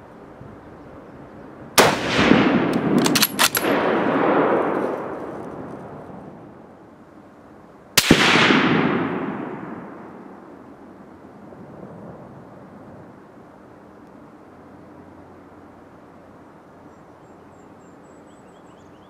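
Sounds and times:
rifle shots with rolling echo: 1.8s - 6.7s, 8.0s - 10.9s
rifle bolt clicking: 2.7s - 3.7s.

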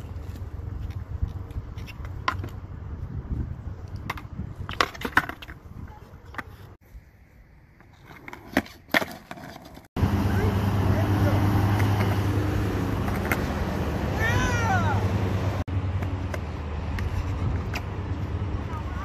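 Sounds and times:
skateboard clacking on concrete: 0.8s - 2.6s, 3.9s - 6.7s, 7.8s - 9.8s, 13.1s - 13.5s.

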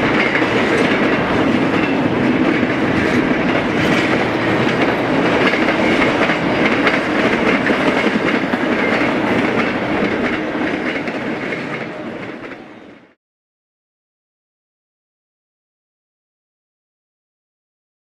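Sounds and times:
freight train rumbling past: 0.0s - 13.2s
wheels clacking on rails: 0.0s - 13.2s.

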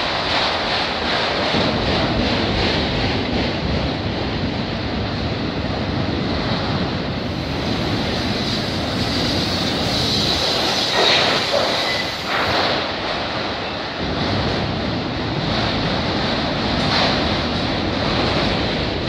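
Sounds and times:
freight train wheels rumbling on rail: 0.0s - 19.0s
high wheel squeal: 8.2s - 12.5s.

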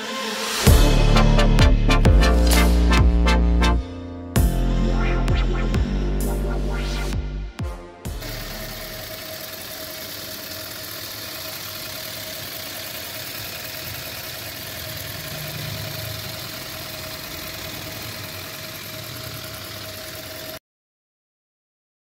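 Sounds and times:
car engine idling with whine: 8.1s - 20.6s.

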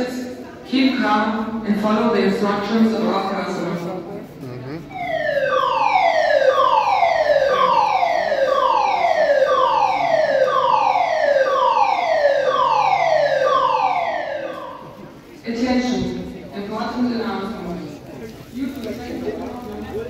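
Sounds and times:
evacuation alarm siren falling tone: 4.9s - 15.1s.

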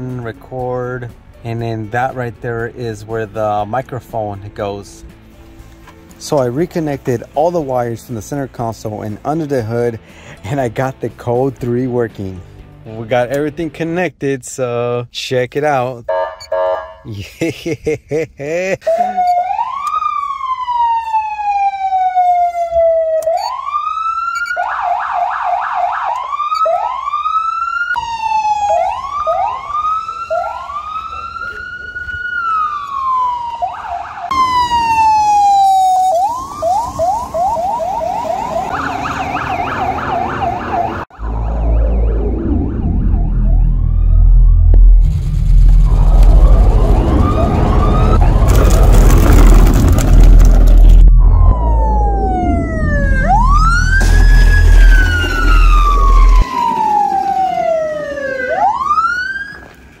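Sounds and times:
police siren wailing and yelping: 18.9s - 45.0s, 45.9s - 48.6s, 51.1s - 59.9s
deep rumble: 41.2s - 56.7s.

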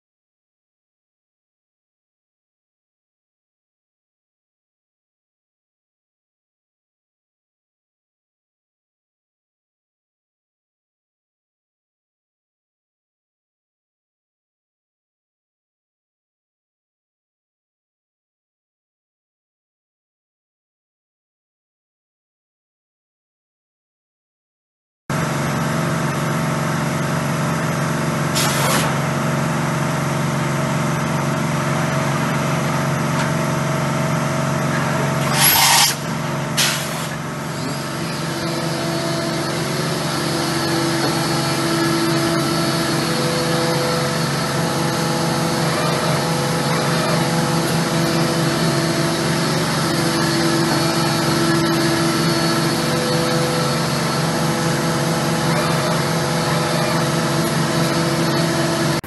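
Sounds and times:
air compressor drone: 25.1s - 59.0s
loud hissing bursts: 28.4s - 29.0s, 35.2s - 37.2s
machine spindle whining: 31.6s - 59.0s.

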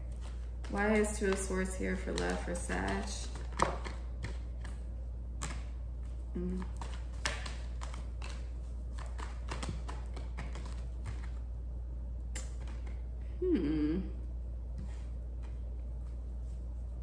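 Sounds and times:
cards being shuffled: 0.1s - 4.8s, 5.4s - 11.4s.

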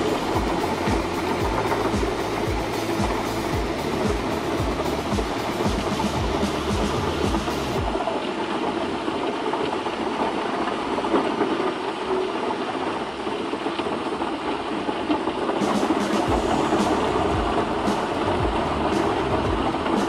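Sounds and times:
low thumps: 0.0s - 8.0s, 16.0s - 20.0s
wood chipper running: 0.0s - 20.0s.

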